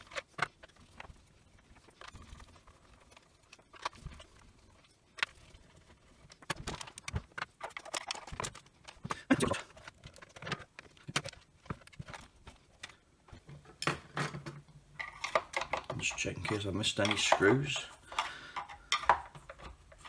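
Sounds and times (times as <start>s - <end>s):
plastic housing clicking and knocking: 9.8s - 20.0s.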